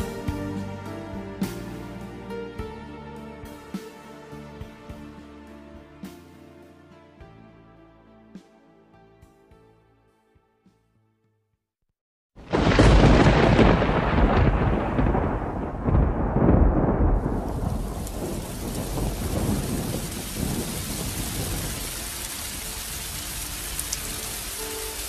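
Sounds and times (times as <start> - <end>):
thunder rolling: 12.4 - 23.4
heavy rain hissing: 16.7 - 25.0.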